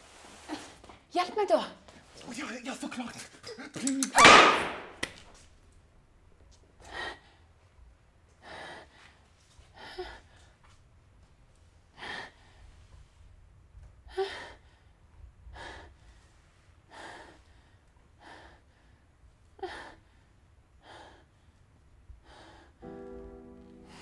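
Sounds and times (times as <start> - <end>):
music with held chord: 22.8 - 24.0.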